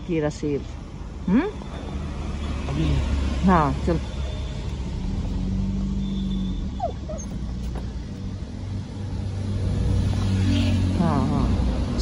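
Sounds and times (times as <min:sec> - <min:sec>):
car rumbling slowly: 0:00.0 - 0:12.0
dog whining: 0:06.6 - 0:07.8.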